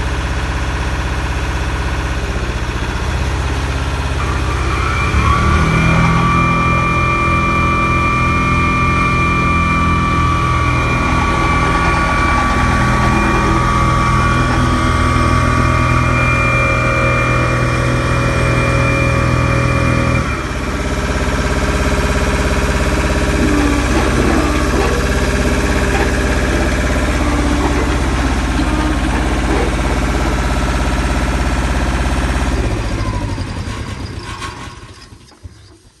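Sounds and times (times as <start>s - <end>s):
diesel engine running: 0.0s - 36.0s
high steady whine: 3.9s - 31.4s.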